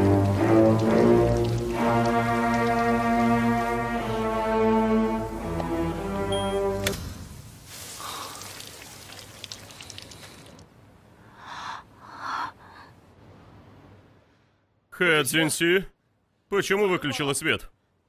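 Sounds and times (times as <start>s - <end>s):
shower water spraying: 0.0s - 6.2s, 6.9s - 10.6s.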